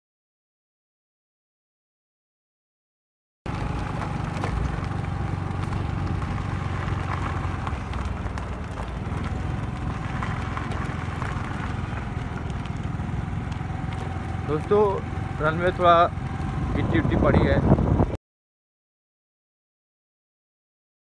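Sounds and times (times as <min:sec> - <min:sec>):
grit crackling: 0:03.5 - 0:16.9
scooter engine rumble: 0:03.5 - 0:18.2
wind on microphone: 0:16.5 - 0:18.2.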